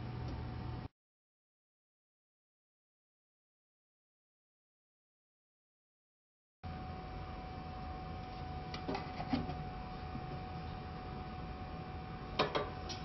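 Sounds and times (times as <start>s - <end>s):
steady machine hum: 0.0s - 0.9s, 6.6s - 13.0s.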